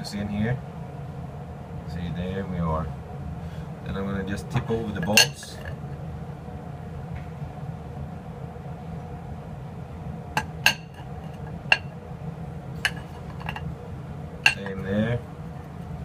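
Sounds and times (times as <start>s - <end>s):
steady low hum: 0.0s - 16.0s
bolts clinking on ceramic plate: 5.0s - 5.7s, 10.4s - 11.9s, 12.8s - 13.7s, 14.4s - 14.8s.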